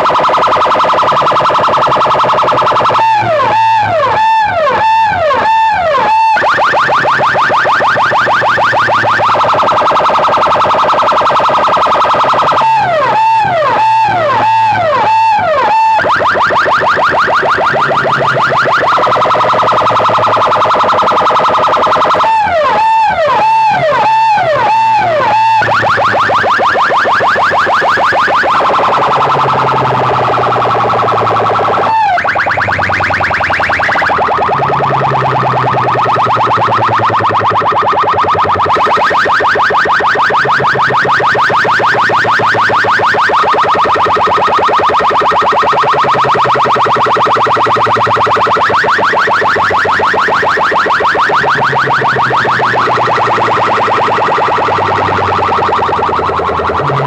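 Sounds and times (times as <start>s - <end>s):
electronic siren wails: 0.0s - 57.0s
rising electronic chirps: 51.3s - 57.0s.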